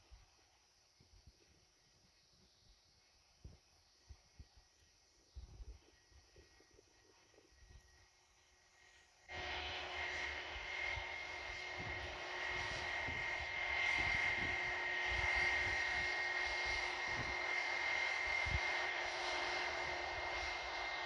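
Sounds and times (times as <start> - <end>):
jet engines high whine and roar: 9.2 - 21.0.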